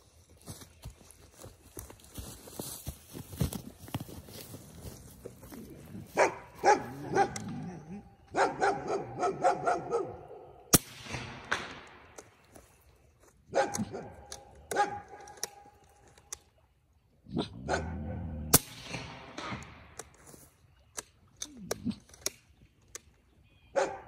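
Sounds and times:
dog barking and whining: 6.2 - 10.5, 17.3 - 18.4
air rifle shots: 10.7 - 12.2, 18.5 - 19.9.

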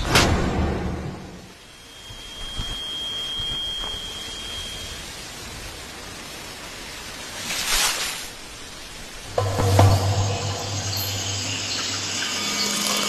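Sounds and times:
steady noise hiss: 1.2 - 13.0
thin high whistle: 1.6 - 5.5.

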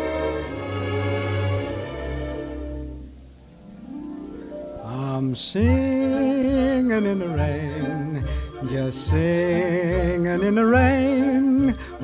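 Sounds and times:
song with wavering held notes: 0.0 - 12.0.

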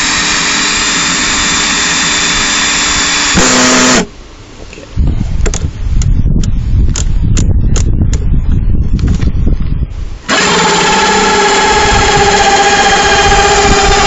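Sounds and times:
hole saw grinding through plastic: 10.3 - 14.0.

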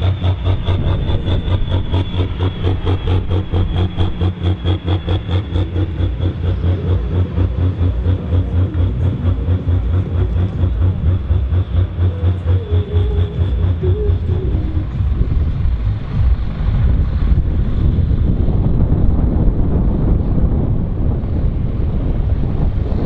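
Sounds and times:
tractor diesel engine pulsing: 0.0 - 23.0.

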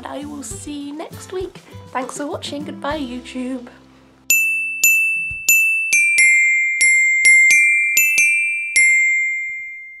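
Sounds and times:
bell-like mallet notes: 4.3 - 10.0.

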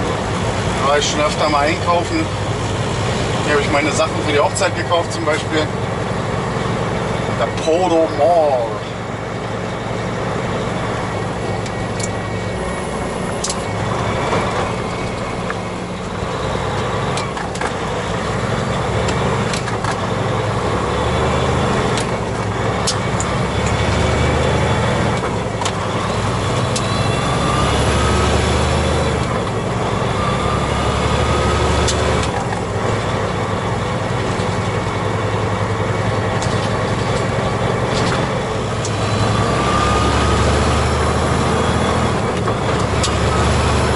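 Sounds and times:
diesel engine drone: 0.0 - 43.9
road noise: 0.0 - 43.9.

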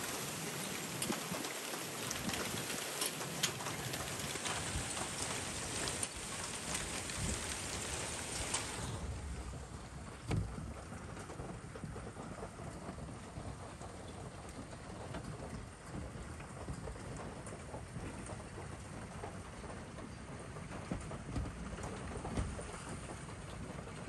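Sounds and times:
hailstones striking: 0.0 - 18.9
heavy rain and hail pelting: 0.0 - 24.0
low thud: 10.2 - 10.8.

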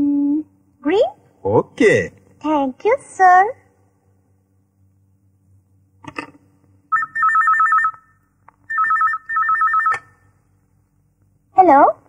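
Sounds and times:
telephone warbling ring: 6.9 - 10.2.

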